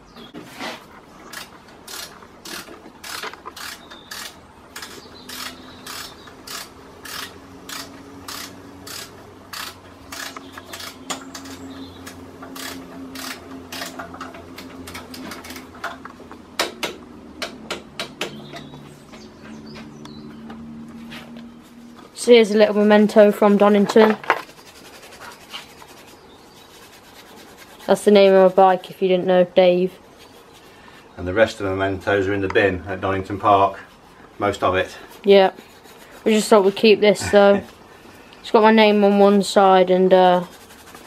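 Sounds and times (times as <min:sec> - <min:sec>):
hand ratchet clicking: 0:01.3 - 0:16.0.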